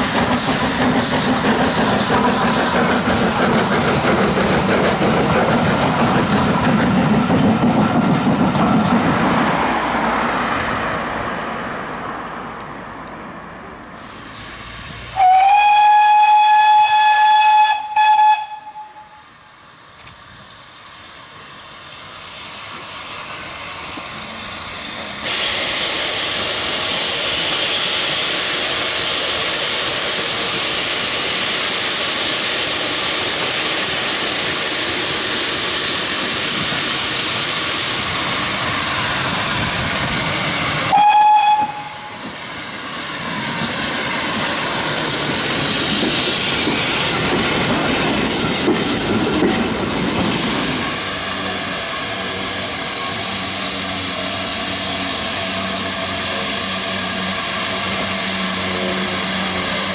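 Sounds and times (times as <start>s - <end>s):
loud hiss of steam: 0.0s - 11.7s, 13.9s - 59.9s
steam train passing: 0.0s - 59.9s
steam locomotive whistle: 14.2s - 19.6s, 40.6s - 43.6s, 50.7s - 59.9s.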